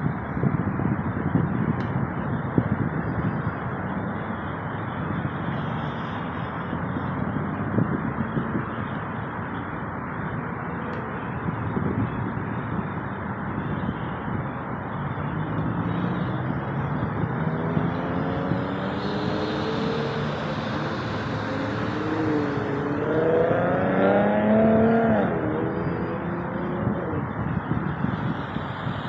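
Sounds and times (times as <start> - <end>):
vehicle engines passing: 0.0 - 29.0
engine rising in pitch: 15.5 - 29.0.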